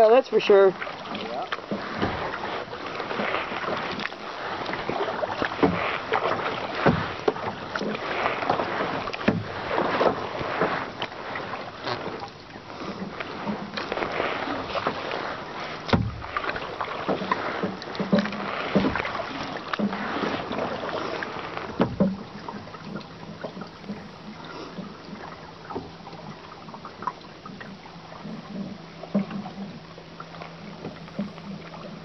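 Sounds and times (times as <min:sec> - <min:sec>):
paddle strokes splashing: 0:00.0 - 0:32.0
water slapping against hull: 0:00.0 - 0:32.0
low thumps: 0:15.9 - 0:16.6.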